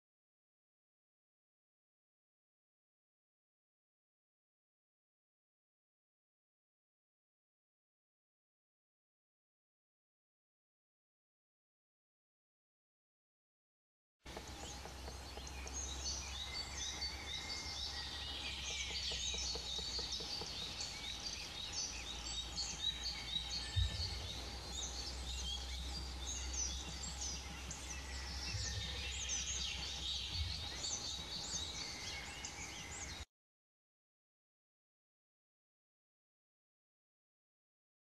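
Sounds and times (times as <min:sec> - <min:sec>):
steady low rumble: 0:14.3 - 0:32.0
songbirds chirping and trilling: 0:14.3 - 0:33.3
soft thumps: 0:23.7 - 0:24.9.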